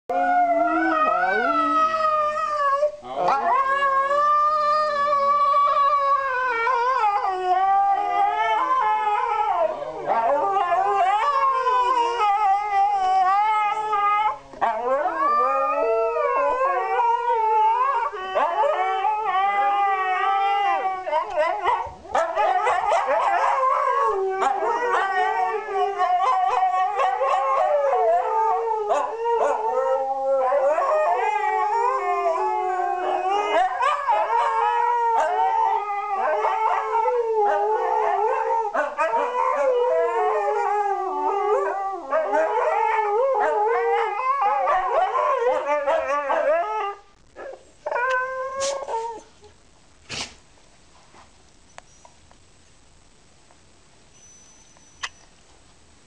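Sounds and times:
dogs howling: 0.1s - 49.3s.

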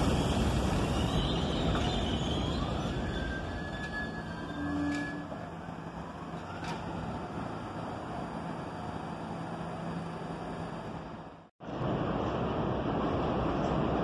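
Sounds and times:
motor and brake whine: 0.0s - 11.5s
subway train braking: 0.0s - 14.0s
wheels rumbling on rail: 0.0s - 14.0s.

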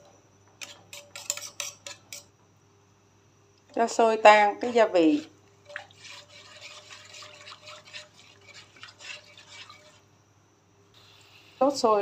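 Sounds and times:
spatula scraping pan: 0.6s - 2.3s, 4.4s - 10.1s
liquid sloshing: 5.6s - 10.0s.

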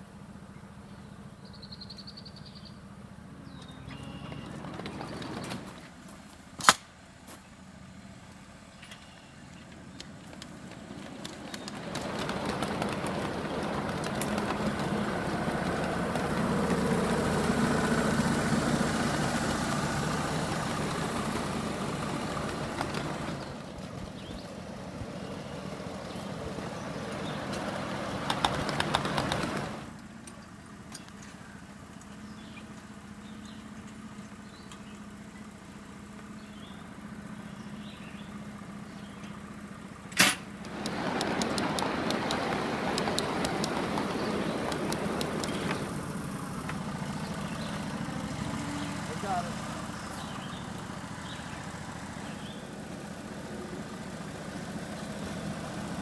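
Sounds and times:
faint bird chirp: 0.5s - 5.5s, 7.4s - 10.1s
miniature train wheels clattering: 4.0s - 5.9s, 9.6s - 17.9s, 19.9s - 23.6s, 40.2s - 46.0s.

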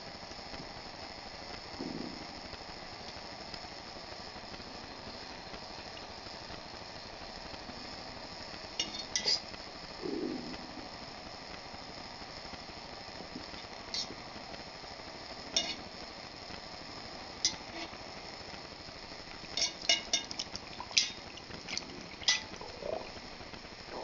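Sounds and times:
steady hiss: 0.0s - 24.0s
wire whisk stirring in metal pot: 19.5s - 22.7s.

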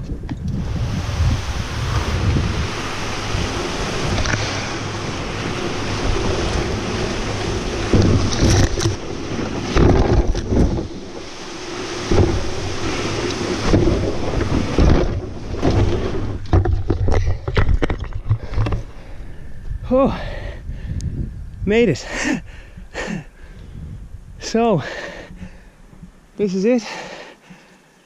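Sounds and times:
canoe hull scraping over grass: 0.6s - 19.6s
branches brushing along hull: 0.6s - 19.7s
canoe knocks and bumps: 4.0s - 19.1s.

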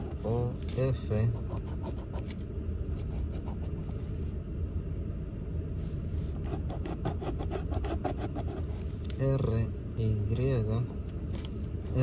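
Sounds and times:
steady low hum: 0.0s - 12.0s
coin scraping scratch card: 1.3s - 2.4s, 6.4s - 8.8s.

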